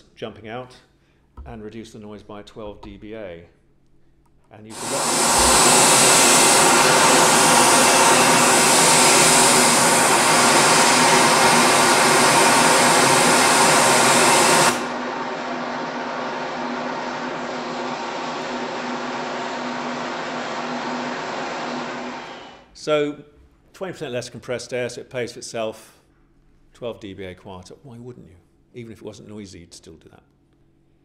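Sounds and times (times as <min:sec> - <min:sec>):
compressed air hiss from nozzles: 0:04.7 - 0:15.0
steady machine hum: 0:04.7 - 0:23.0.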